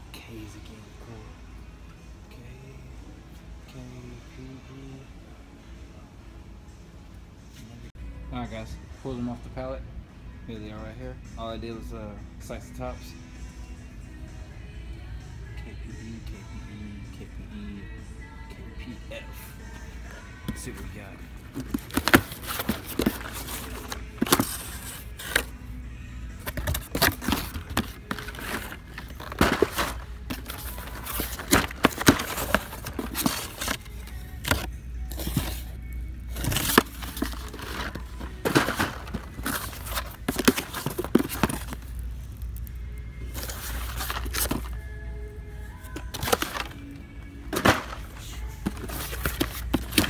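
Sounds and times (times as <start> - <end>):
background music: 0.0 - 50.0
cardboard scraping and rustling: 21.5 - 25.5, 26.4 - 42.0, 43.3 - 44.8, 45.9 - 46.8, 47.5 - 50.0.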